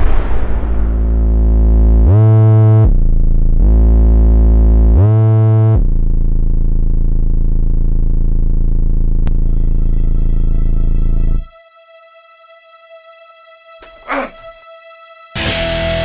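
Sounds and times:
synthesizer bass drone: 0:00.0 - 0:16.0.

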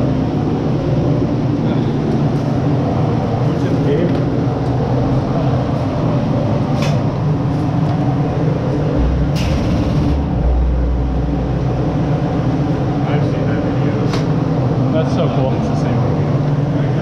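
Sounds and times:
droning room hum: 0:00.0 - 0:17.0
deep rumble: 0:08.0 - 0:14.9.

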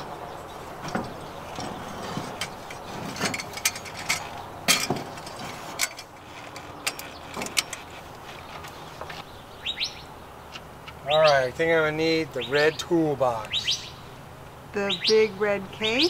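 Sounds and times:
metal clicks and clanks: 0:00.8 - 0:09.2.

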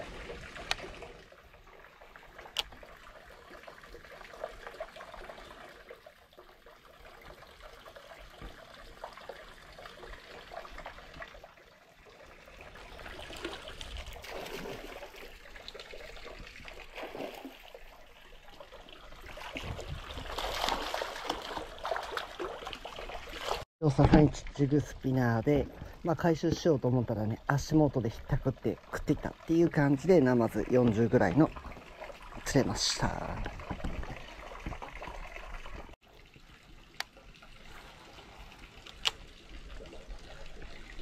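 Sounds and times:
fish splashing and thrashing: 0:00.0 - 0:24.3
faint water trickling: 0:00.0 - 0:41.0.

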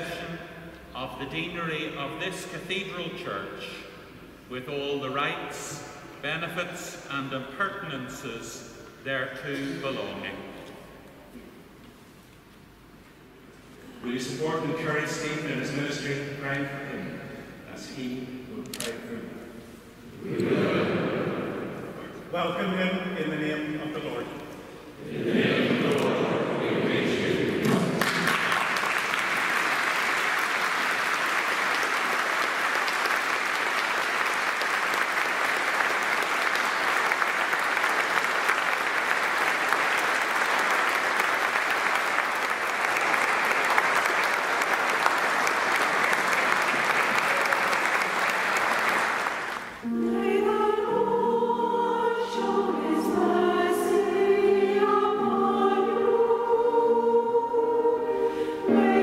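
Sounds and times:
choir singing: 0:20.1 - 0:22.1, 0:25.0 - 0:28.2, 0:49.8 - 0:59.0
congregation applauding: 0:26.8 - 0:49.9.

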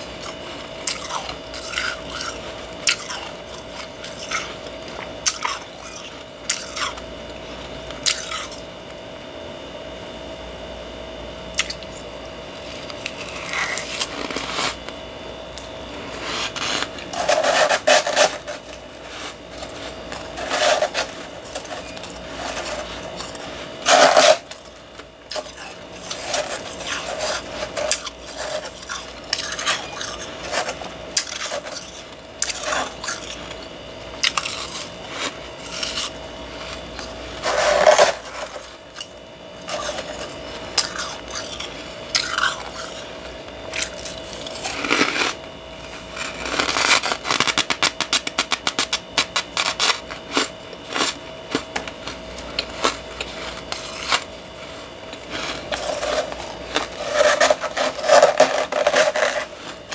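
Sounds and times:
chewing crunchy frost: 0:00.0 - 0:08.9, 0:11.5 - 0:59.9
faint steady hum: 0:00.0 - 0:59.9.

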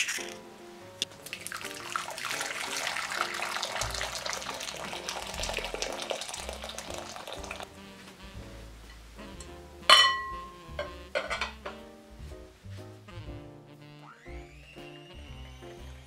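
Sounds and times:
water pouring into glass bowl: 0:01.2 - 0:07.7.

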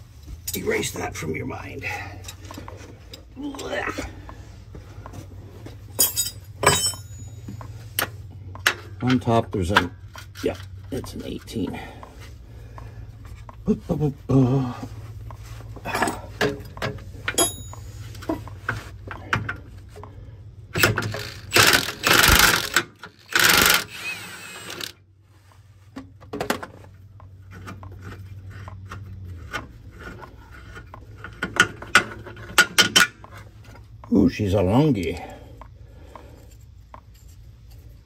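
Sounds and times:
impact wrench hammering: 0:20.8 - 0:24.9.

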